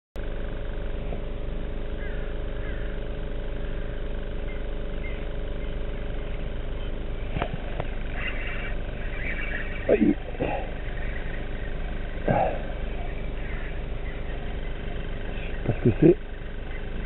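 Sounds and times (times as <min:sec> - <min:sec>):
motor hum: 0:00.2 - 0:17.0
faint chirps: 0:02.0 - 0:17.0.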